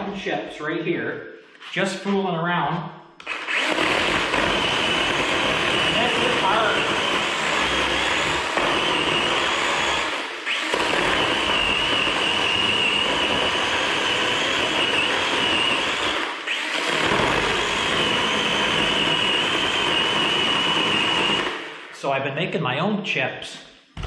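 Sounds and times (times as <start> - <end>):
electric chainsaw cutting wood: 3.2 - 22.0.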